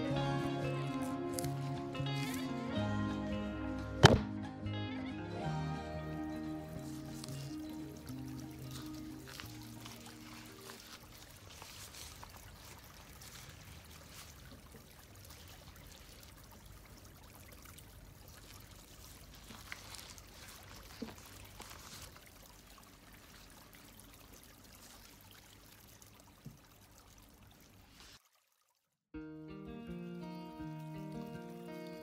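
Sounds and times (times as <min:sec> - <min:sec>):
faint trickle of running water: 0:06.2 - 0:29.0, 0:29.9 - 0:32.0.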